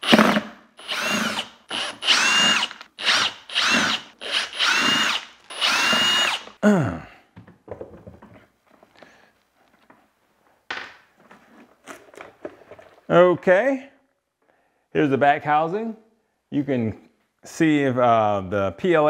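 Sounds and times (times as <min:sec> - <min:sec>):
cordless drill whining: 0:00.0 - 0:06.6.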